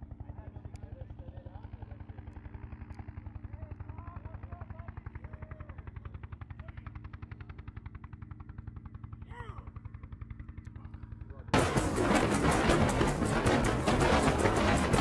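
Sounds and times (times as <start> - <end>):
helicopter rotor beating: 0.0 - 15.0.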